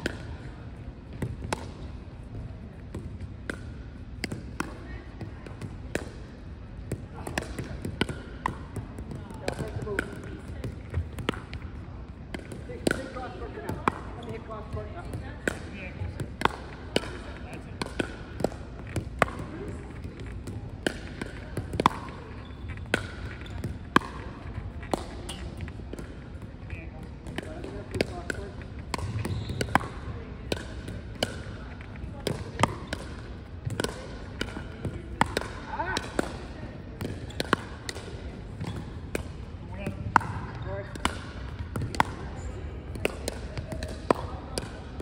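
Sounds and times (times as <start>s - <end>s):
paddles hitting plastic ball: 1.0s - 45.0s
ball bouncing on wooden court: 1.1s - 6.2s, 6.8s - 45.0s.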